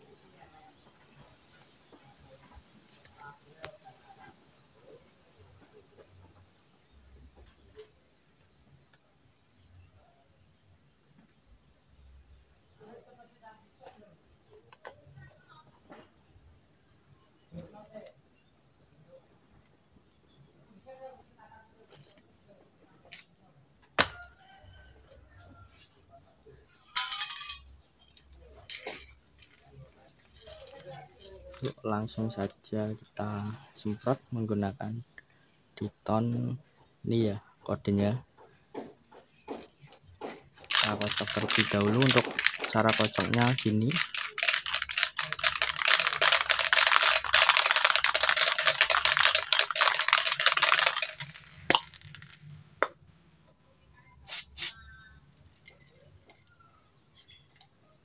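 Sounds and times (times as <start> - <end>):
spray can rattling: 27.0 - 32.6, 39.8 - 52.5, 54.3 - 54.8
metallic click of spray can: 54.2 - 54.8.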